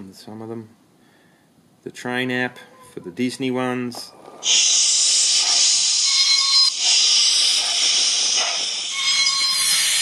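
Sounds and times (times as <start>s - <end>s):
steam hiss from phone speaker: 4.4s - 10.0s.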